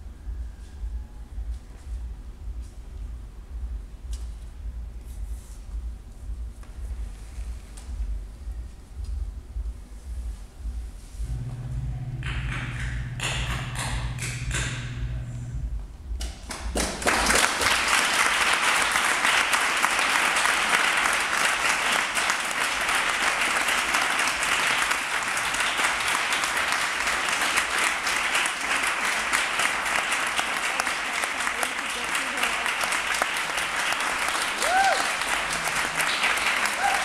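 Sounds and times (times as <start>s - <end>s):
low steady hum: 0.0s - 17.3s
audience applause: 16.4s - 37.0s.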